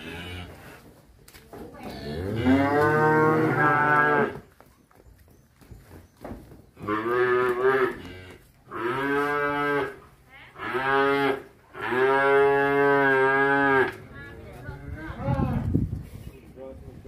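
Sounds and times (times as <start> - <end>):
cattle mooing: 1.9 - 4.4.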